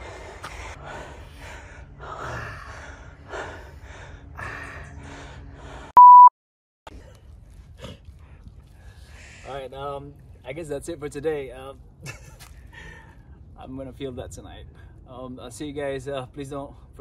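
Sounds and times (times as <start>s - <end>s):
person gasping and breathing hard: 0.0s - 5.9s
censor beep: 6.0s - 6.3s.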